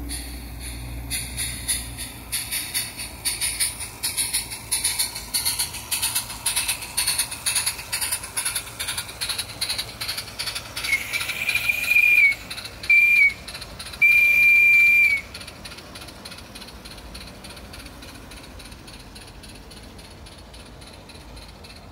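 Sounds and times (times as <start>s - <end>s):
model steam locomotive chuffing: 0.0s - 21.9s
steam whistle blasts: 10.8s - 15.4s.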